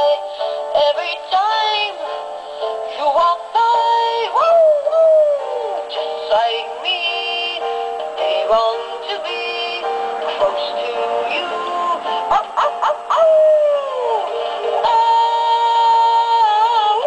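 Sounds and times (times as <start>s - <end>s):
backing music: 0.0s - 17.0s
toy dog synthetic singing: 8.2s - 14.2s, 14.8s - 17.0s.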